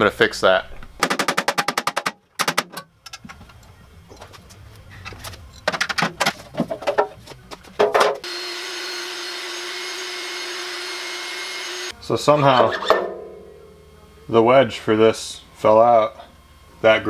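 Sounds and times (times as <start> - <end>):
knocks and clicks from handling: 5.1 - 7.1
shop vacuum running: 7.3 - 17.0.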